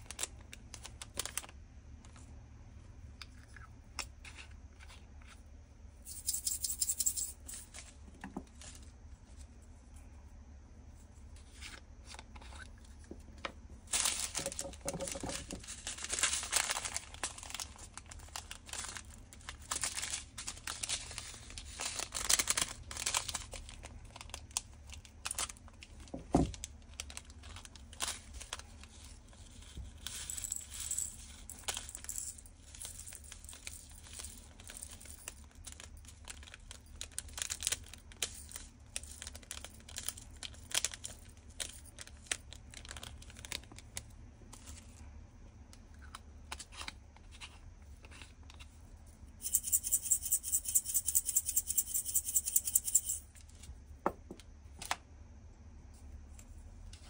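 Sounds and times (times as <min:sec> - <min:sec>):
plastic bags crinkling: 0:00.0 - 0:01.6, 0:13.8 - 0:44.9
small plastic bottles rattling: 0:13.9 - 0:29.0.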